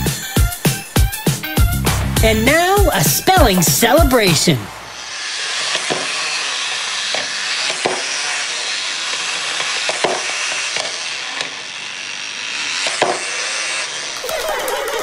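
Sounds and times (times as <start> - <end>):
wind-up toy motors whirring: 5.0 - 15.0
plastic toys clicking and knocking: 14.2 - 15.0.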